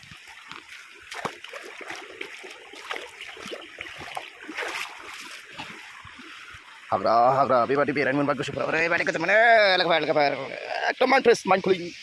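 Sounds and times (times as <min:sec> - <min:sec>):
footsteps through grass and brush: 0:00.0 - 0:06.8
stream trickling over rocks: 0:00.0 - 0:12.0.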